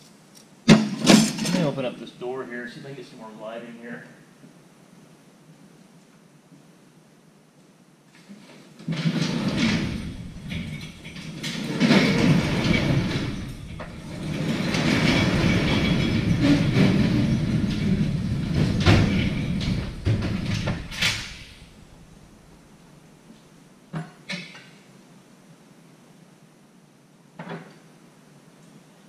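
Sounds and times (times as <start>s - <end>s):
shop door rolling and rattling: 0.7s - 1.9s, 8.3s - 22.8s.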